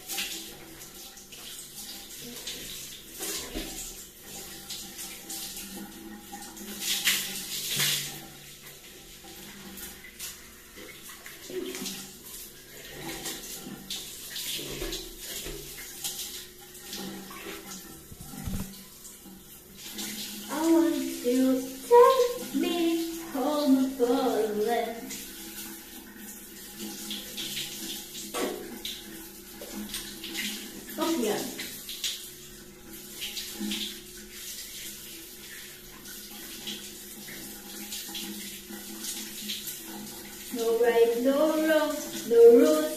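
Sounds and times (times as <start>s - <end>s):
shower spray hissing and splashing: 0.0s - 42.9s
shower spray splashing: 17.0s - 29.0s, 29.6s - 32.4s.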